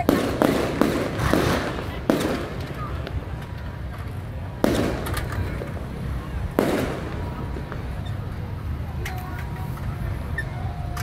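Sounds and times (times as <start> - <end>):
firecracker bangs: 0.0 - 3.9, 4.5 - 8.1.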